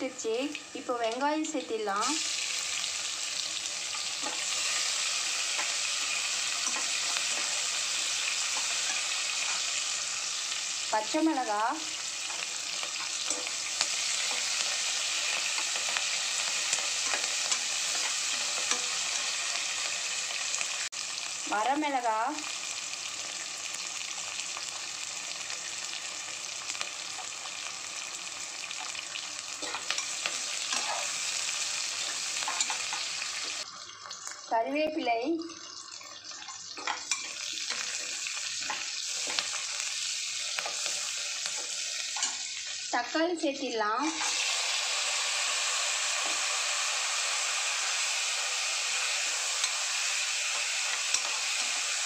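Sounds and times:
onions sizzling in hot oil: 0:00.0 - 0:52.0
metal spoon scraping a pan: 0:03.9 - 0:10.6, 0:11.9 - 0:20.4, 0:28.8 - 0:33.6, 0:36.3 - 0:42.8, 0:50.5 - 0:52.0.

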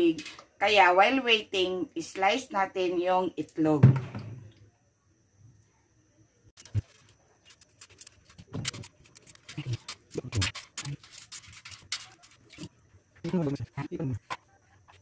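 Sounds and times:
eggshell cracking: 0:06.6 - 0:12.7.

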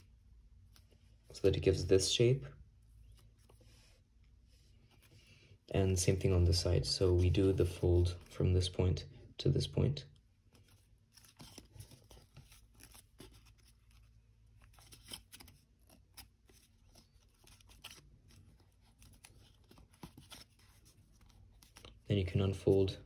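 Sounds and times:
paper rustling and crinkling: 0:10.4 - 0:23.0.

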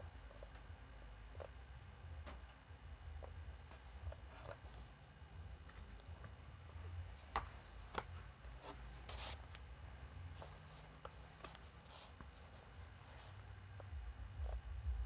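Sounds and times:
low rumble: 0:14.0 - 0:15.0.

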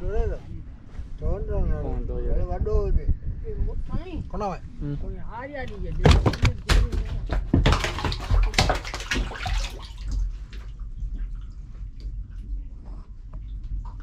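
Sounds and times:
fish splashing in water: 0:06.1 - 0:11.6
water dripping: 0:06.6 - 0:12.6.

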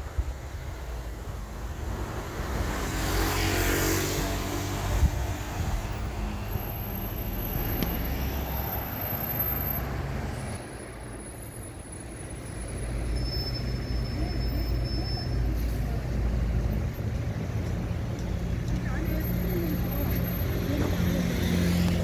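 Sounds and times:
street traffic noise: 0:00.0 - 0:22.0
bus diesel engine rumble: 0:04.6 - 0:22.0.

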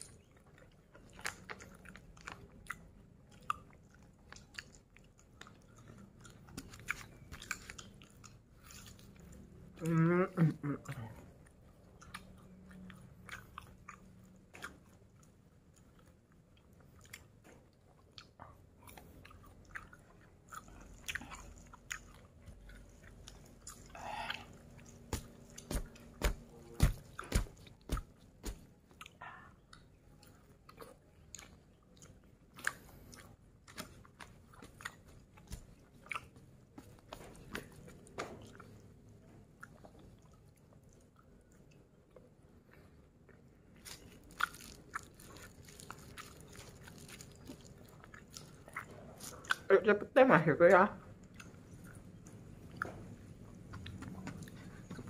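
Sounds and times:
person chewing food: 0:00.0 - 0:49.7, 0:51.0 - 0:55.0
crunchy bites: 0:43.8 - 0:49.6.

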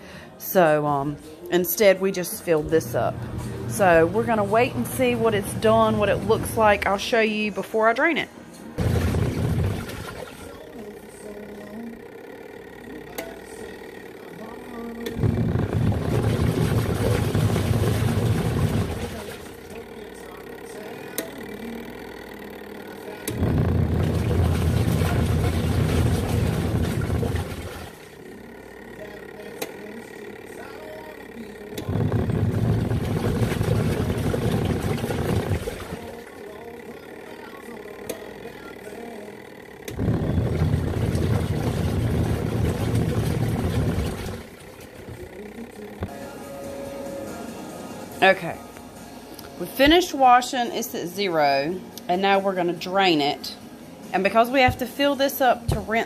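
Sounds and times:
washing machine motor clicks: 0:01.5 - 0:07.6, 0:08.8 - 0:46.2, 0:49.4 - 0:50.6
washing machine churning water: 0:02.7 - 0:08.2, 0:08.8 - 0:46.1, 0:54.2 - 0:56.0.

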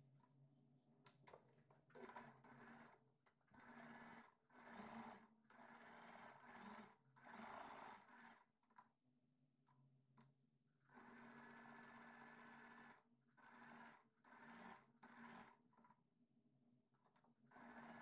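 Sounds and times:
faint sewing machine stitching: 0:01.8 - 0:08.9, 0:10.8 - 0:16.1, 0:17.0 - 0:18.0.

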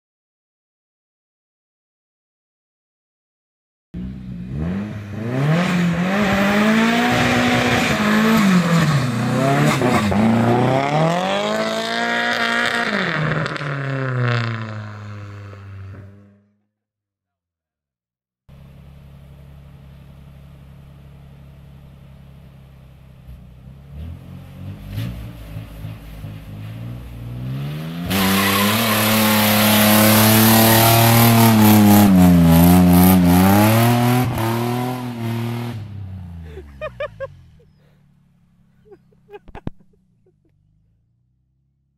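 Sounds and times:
car engine revving: 0:04.0 - 0:16.4, 0:18.5 - 0:41.7
tyre screech: 0:28.0 - 0:31.6.

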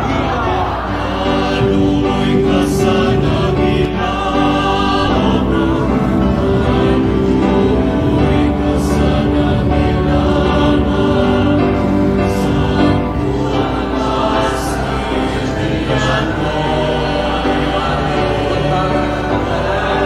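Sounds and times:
church choir singing a hymn: 0:00.0 - 0:20.0.

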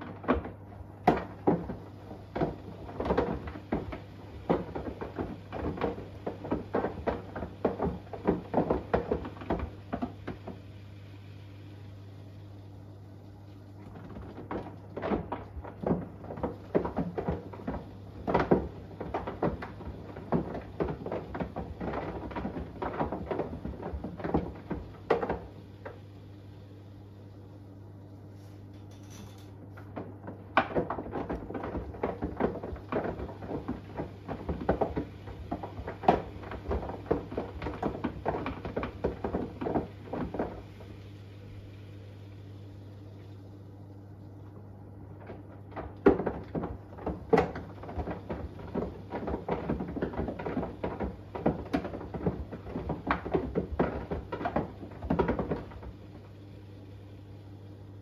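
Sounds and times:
steady low hum: 0:00.0 - 0:58.0
phone clattering in washing machine: 0:28.8 - 0:33.4.

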